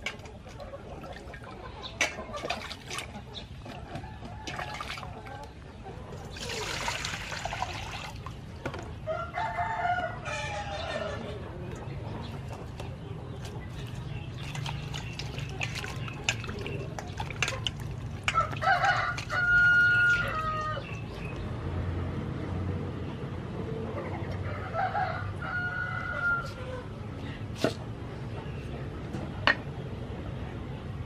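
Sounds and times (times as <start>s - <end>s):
hands washing vegetables in water: 0.0s - 8.9s, 11.8s - 21.4s
rooster crowing: 9.1s - 11.2s, 18.3s - 20.9s, 24.5s - 26.6s.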